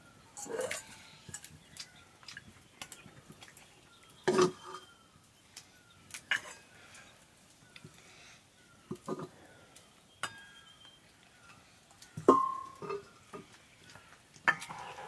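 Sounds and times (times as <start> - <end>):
ladle scraping in wok: 14.5 - 15.0.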